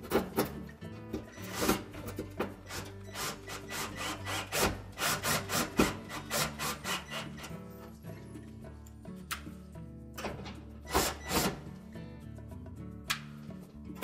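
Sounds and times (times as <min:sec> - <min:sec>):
background music: 0:00.0 - 0:14.0
drill driving screw into metal: 0:01.3 - 0:07.6, 0:10.9 - 0:11.7.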